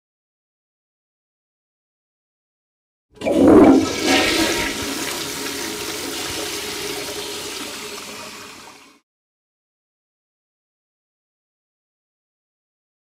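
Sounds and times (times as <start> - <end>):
toilet flushing: 3.2 - 9.0.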